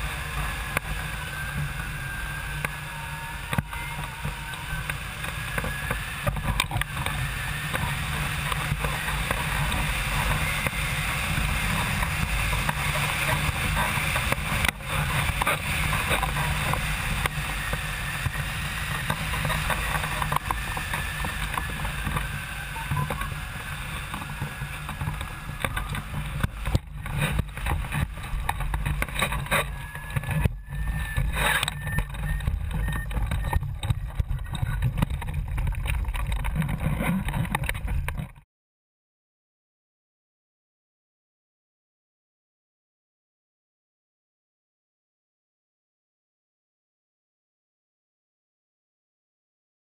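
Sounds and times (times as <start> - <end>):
wind rushing over microphone: 0.0 - 38.4.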